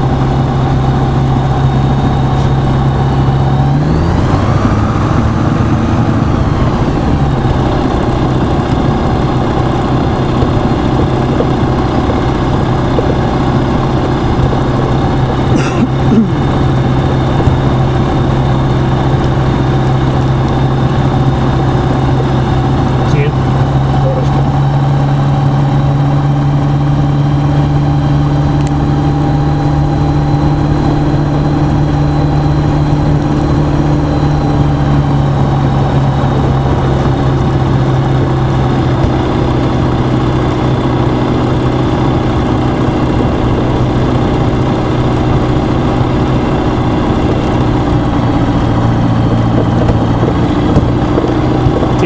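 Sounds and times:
light aircraft engine droning: 0.0 - 52.0.

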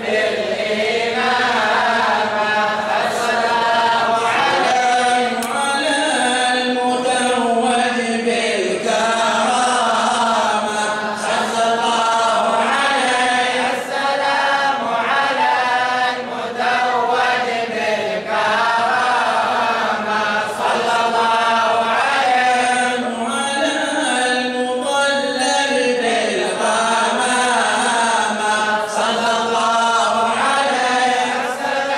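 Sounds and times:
men chanting devotional praise: 0.0 - 31.9.

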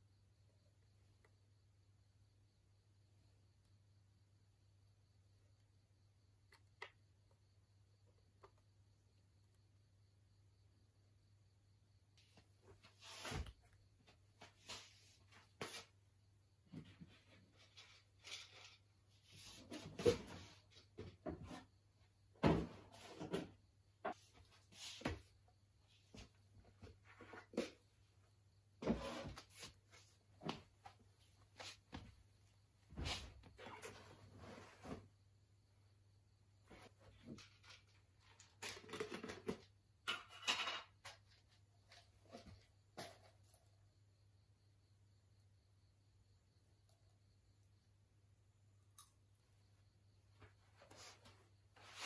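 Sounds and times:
soft rustling and handling: 50.4 - 52.0.

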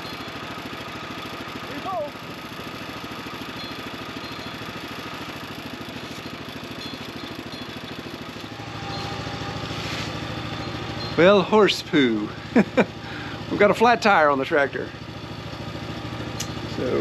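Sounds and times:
sawmill engine running: 0.0 - 17.0.

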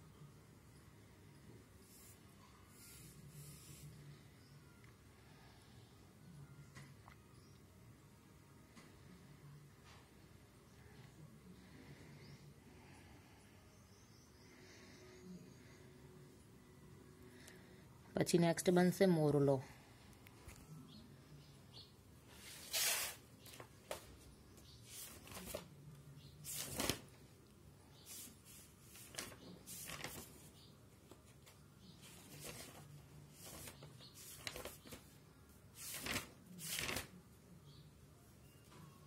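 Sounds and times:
faint steady hum: 0.0 - 22.5
paper rustling: 22.4 - 24.1, 24.9 - 25.7, 26.4 - 27.1, 28.1 - 37.2.

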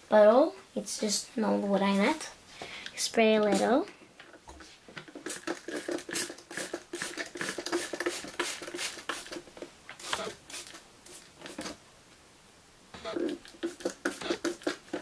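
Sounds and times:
spray bottle squirts: 5.1 - 9.4, 10.0 - 11.8, 13.0 - 15.0.

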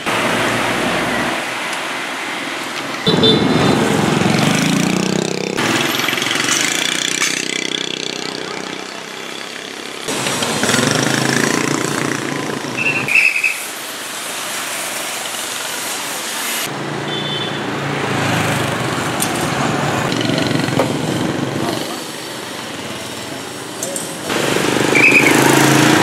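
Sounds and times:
motorbikes passing: 0.0 - 13.6, 16.6 - 26.0
vehicle engines passing: 0.0 - 13.6, 16.6 - 26.0
truck passing: 3.0 - 13.1, 24.2 - 26.0
brief high squeal: 12.8 - 13.7.

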